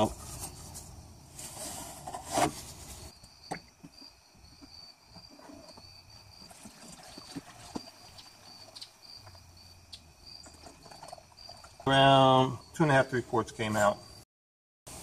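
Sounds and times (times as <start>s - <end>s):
crickets chirping: 0.0s - 14.2s
fluid glugging into a jug: 5.6s - 9.4s, 10.3s - 12.0s.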